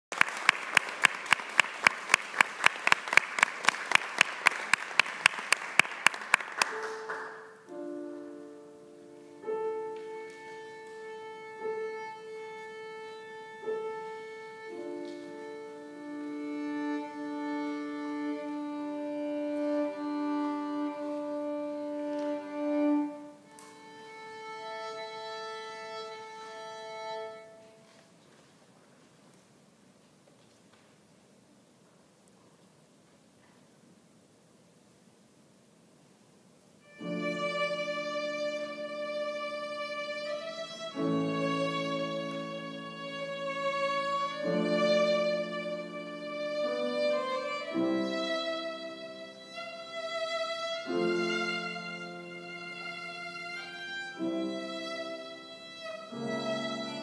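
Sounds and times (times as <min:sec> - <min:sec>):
audience applause: 0:00.1 - 0:07.5
close clapping: 0:00.1 - 0:07.5
piano notes: 0:06.6 - 0:27.8, 0:36.8 - 0:57.0
violin tuning: 0:07.7 - 0:28.0, 0:36.8 - 0:57.0.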